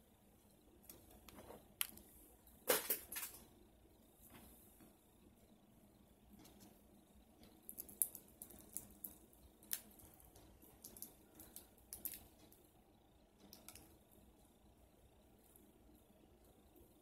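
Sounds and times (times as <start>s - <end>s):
crawfish shells cracking: 7.4s - 12.6s.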